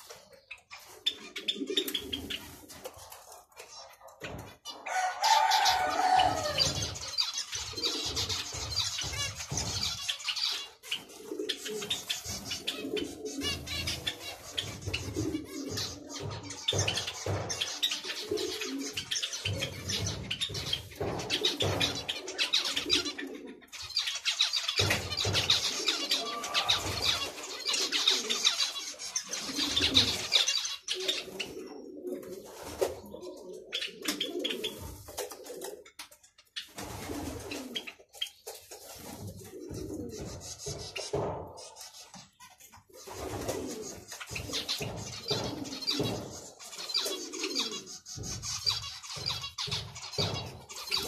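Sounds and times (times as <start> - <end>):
lower repeated bird calls: 4.7 - 32.4
finches chattering: 6.4 - 31.5.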